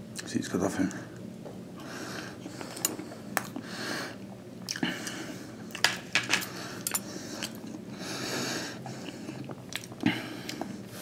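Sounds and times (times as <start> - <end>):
person chewing food: 2.2 - 3.7, 4.6 - 5.8, 6.8 - 7.9, 8.8 - 10.9.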